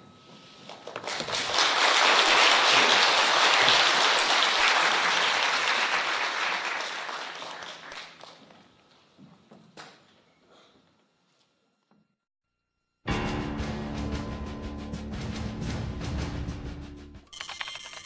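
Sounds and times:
audience applauding: 0.7 - 8.5.

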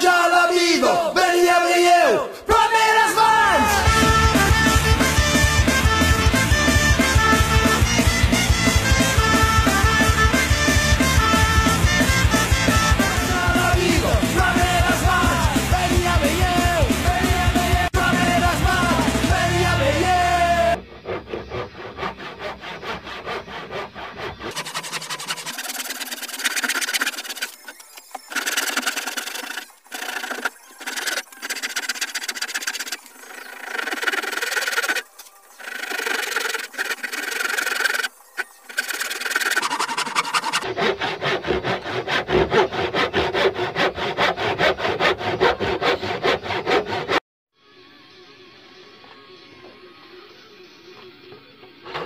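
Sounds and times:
hand saw rasping through wood: 20.8 - 47.2.

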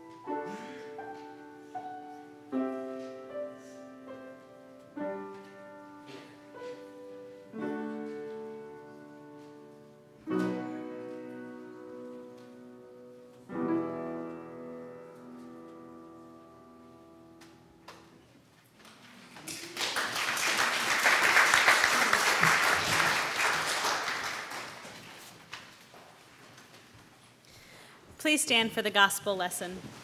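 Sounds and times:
congregation applauding: 19.0 - 25.8.

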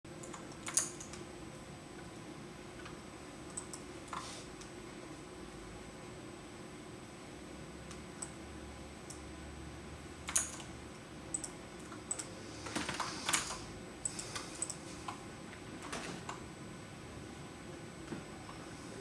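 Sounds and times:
faint steady hum: 0.1 - 19.0
keyboard keystrokes: 0.2 - 1.2, 10.3 - 10.7.

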